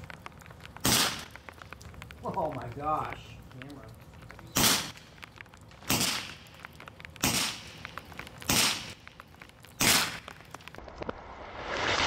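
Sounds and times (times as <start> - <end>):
air pistol shots: 0.8 - 1.2, 4.6 - 4.9, 5.9 - 6.3, 7.2 - 7.7, 8.5 - 9.0, 9.8 - 10.2.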